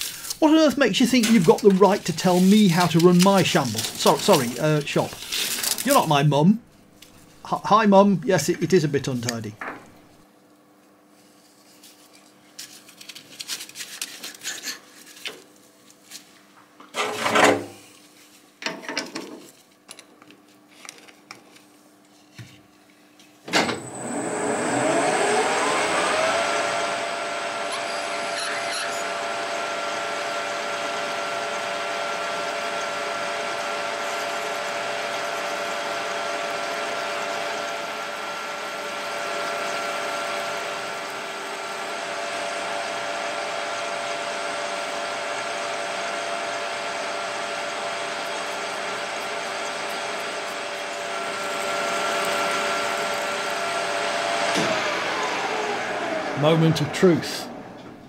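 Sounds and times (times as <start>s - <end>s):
lathe whine: 0.0s - 6.2s, 23.5s - 58.0s.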